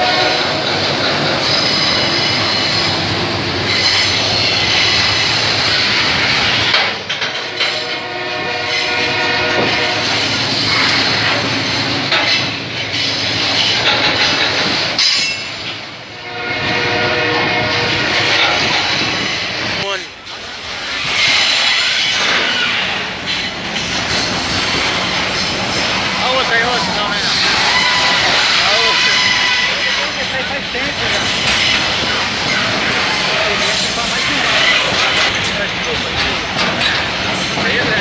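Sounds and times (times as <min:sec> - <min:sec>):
train wheels clattering over rails: 0:00.0 - 0:38.0
high-pitched wheel squeal: 0:27.2 - 0:30.4.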